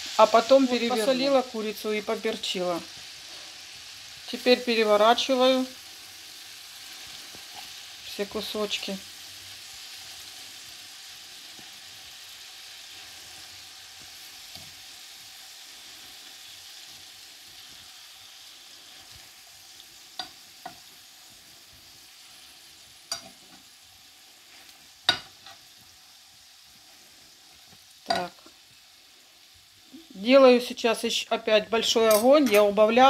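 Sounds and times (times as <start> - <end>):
chicken sizzling in a frying pan: 0.0 - 33.0
metal fork clinking on pan: 23.1 - 23.4, 32.1 - 32.8.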